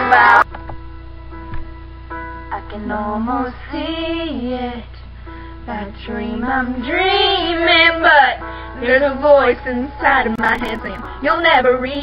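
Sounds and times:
steady low hum: 0.4 - 12.0
young female voices singing: 5.7 - 12.0.

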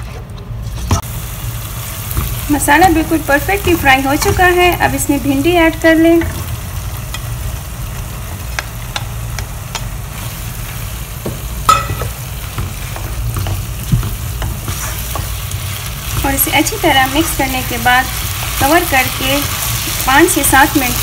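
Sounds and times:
food sizzling in a pan: 1.0 - 21.0
spatula scraping and tapping pan: 11.3 - 15.4.

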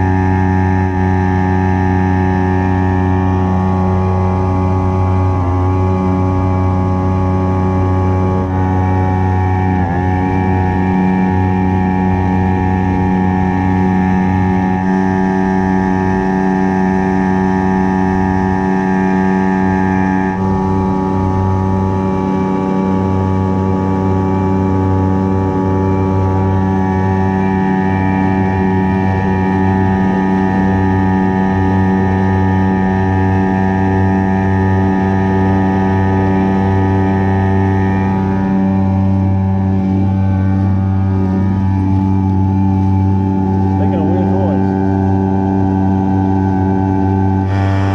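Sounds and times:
outboard motor running steadily: 0.0 - 47.9.

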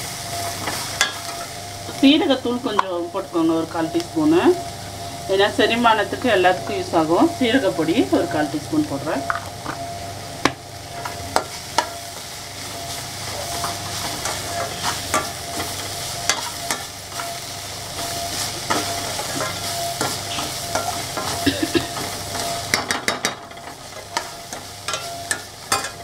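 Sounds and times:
vegetables sizzling: 0.0 - 26.0
spatula clinking on metal pan: 18.7 - 26.0.

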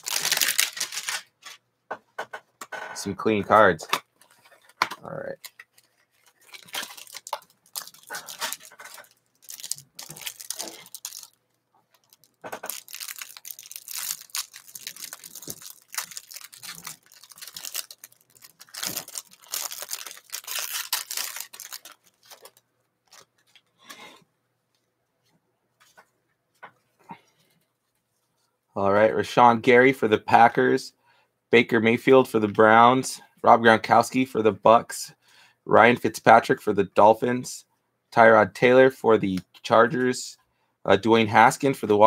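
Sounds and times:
plastic wrap crackling and rustling: 0.0 - 1.6, 4.2 - 23.9.

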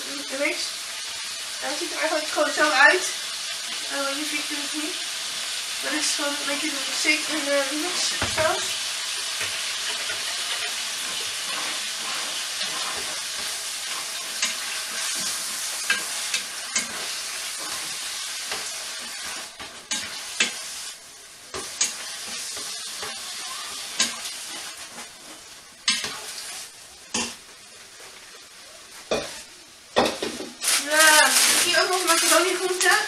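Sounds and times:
chicken sizzling in a frying pan: 0.0 - 33.0
spatula scraping a pan: 7.0 - 20.9, 21.5 - 28.2.

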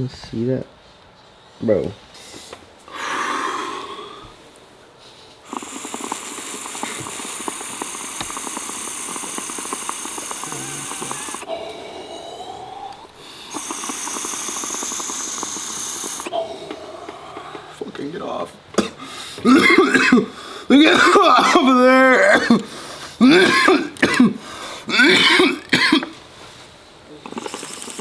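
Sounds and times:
water bubbling in glass pipe: 5.4 - 17.7, 27.2 - 28.0.

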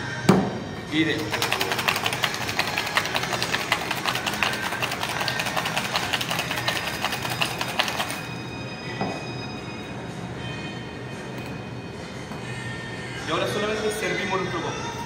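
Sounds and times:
ice rattling in cocktail shaker: 1.0 - 8.4.

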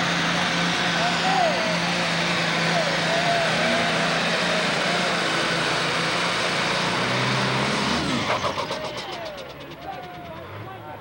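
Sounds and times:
tractor diesel engine roaring: 0.0 - 11.0.

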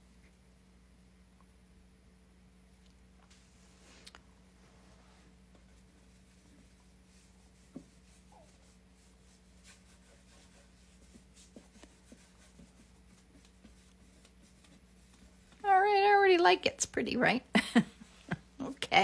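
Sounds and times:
low steady hum: 0.0 - 19.0
paintbrush scrubbing: 4.8 - 16.0.

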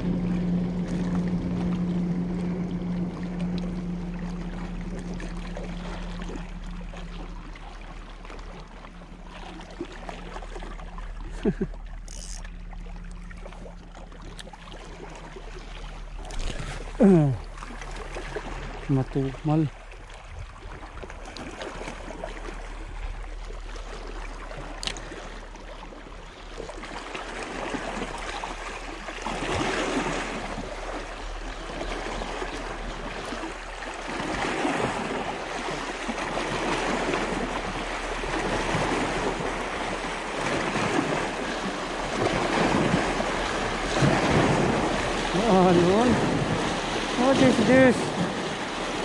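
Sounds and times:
waves washing against rocks: 26.7 - 49.0.

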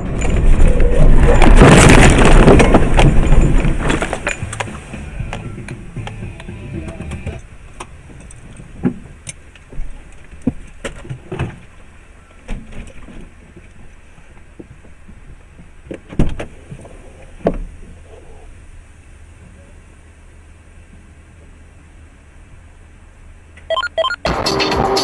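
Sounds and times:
cab knocks and rattles: 0.0 - 11.8
engine and road hum: 0.0 - 25.0.

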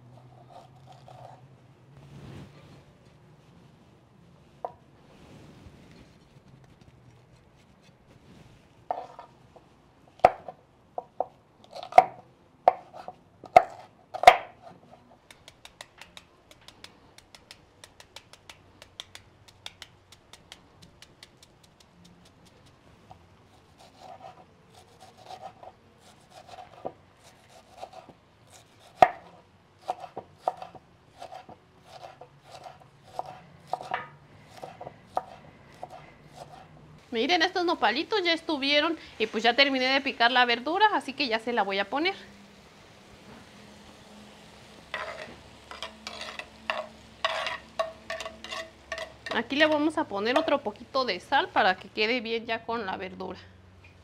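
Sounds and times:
knife chopping on wooden board: 10.2 - 14.6, 25.0 - 36.6.

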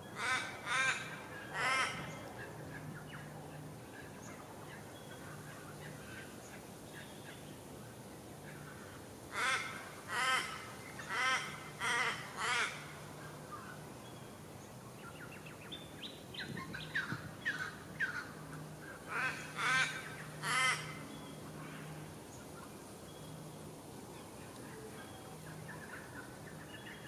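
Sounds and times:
nestling raspy begging calls: 0.2 - 2.2, 8.6 - 13.0, 16.6 - 21.9.

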